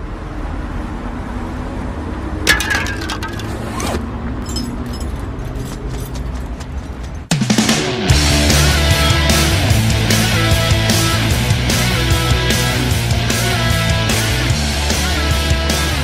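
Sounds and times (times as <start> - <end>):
street rumble: 0.0 - 16.0
sharp cracks and scrapes: 2.5 - 7.3
loud rock music: 7.3 - 16.0.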